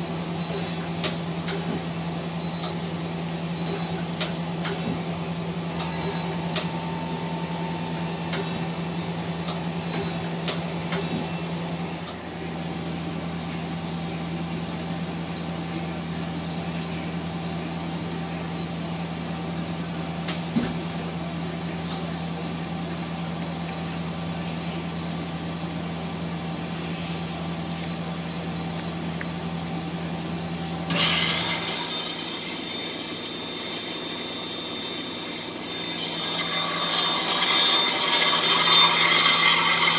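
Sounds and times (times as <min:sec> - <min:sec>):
drive whine: 0:00.0 - 0:39.9
lathe humming: 0:30.8 - 0:39.9.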